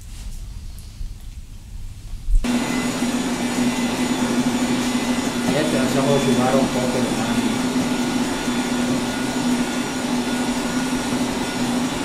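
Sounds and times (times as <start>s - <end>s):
heat gun fan whirring: 2.3s - 12.0s.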